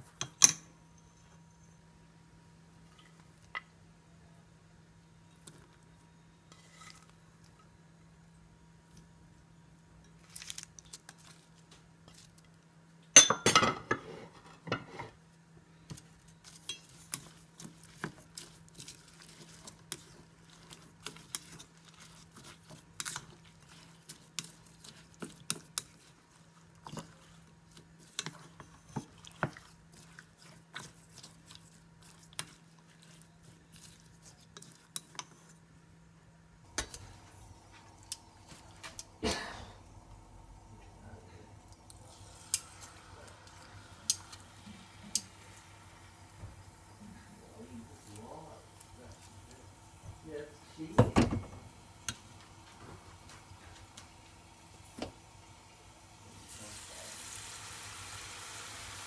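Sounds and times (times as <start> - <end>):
faint low hum: 14.3 - 57.0.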